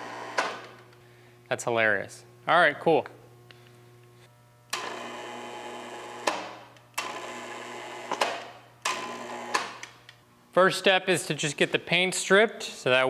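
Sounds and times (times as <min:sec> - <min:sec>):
electric hoist motor running: 0:00.0 - 0:01.0, 0:03.6 - 0:10.2.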